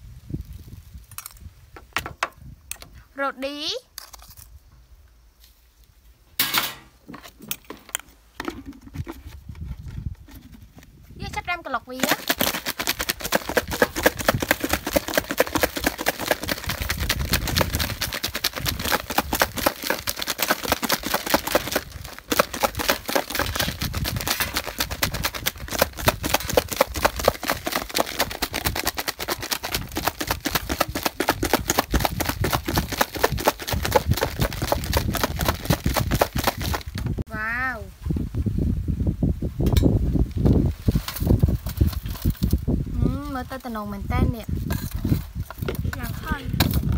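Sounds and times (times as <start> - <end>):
chicken wings rattling in plastic pitcher: 11.9 - 37.2.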